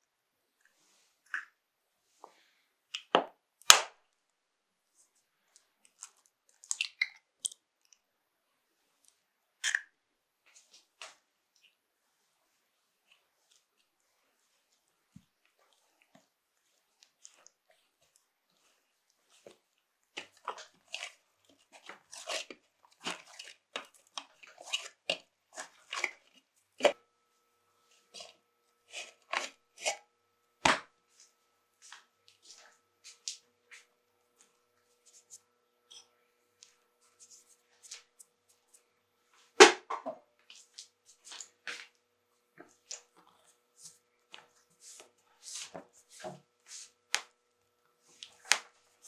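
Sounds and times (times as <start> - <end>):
sticky dough squishing: 5.5 - 8.0, 13.0 - 27.0, 27.9 - 30.0, 39.5 - 47.4, 48.0 - 49.0
eggshell cracking: 6.0 - 7.6.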